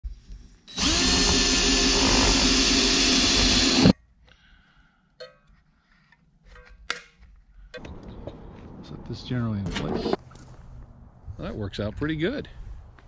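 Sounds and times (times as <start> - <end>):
cordless drill driving screw: 0.7 - 4.0.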